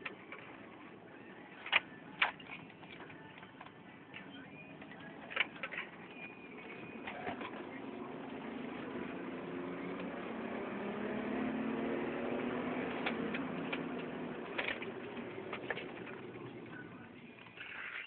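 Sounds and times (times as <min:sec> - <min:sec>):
car engine accelerating: 0:04.4 - 0:17.7.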